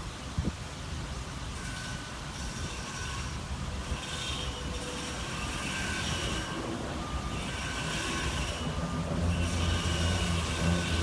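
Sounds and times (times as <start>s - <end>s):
diesel truck engine rumbling: 4.6s - 11.0s.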